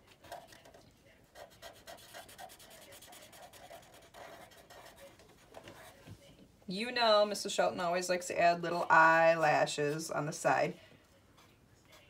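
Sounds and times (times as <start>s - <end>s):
marker scrubbing on paper: 0.2s - 6.0s.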